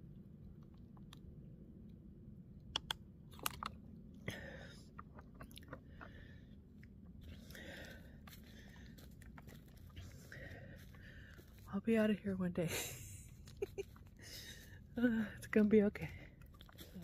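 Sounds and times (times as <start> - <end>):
twigs clicking and snapping: 2.8 - 3.7.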